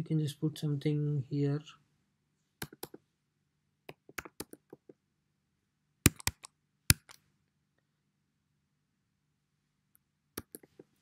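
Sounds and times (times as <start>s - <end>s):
computer keyboard typing: 4.0s - 4.8s, 6.1s - 7.2s.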